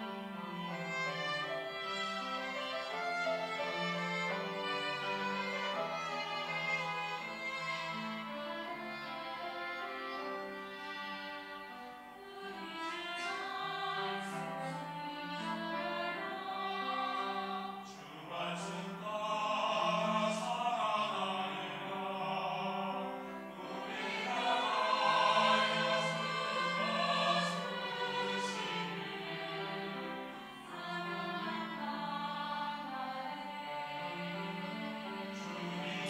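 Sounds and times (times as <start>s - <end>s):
choir singing in parts: 12.1s - 36.0s.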